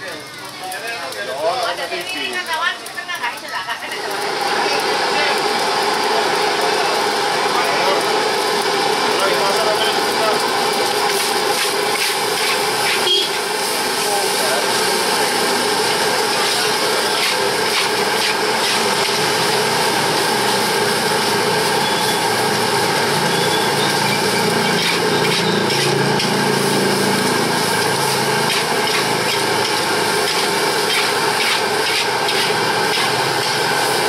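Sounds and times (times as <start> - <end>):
food sizzling: 0.0 - 34.0
wok burner roaring: 0.0 - 34.0
metal spatula scraping wok: 11.0 - 13.8, 15.8 - 19.8, 23.0 - 34.0.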